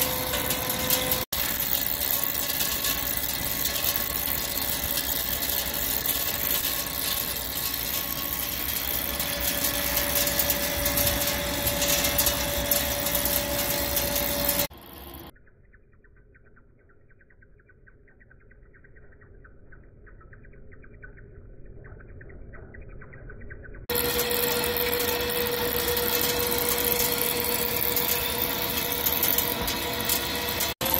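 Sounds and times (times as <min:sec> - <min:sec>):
lathe cutting metal: 0:00.0 - 0:15.3, 0:23.9 - 0:30.9
steady machine tone: 0:00.0 - 0:30.9.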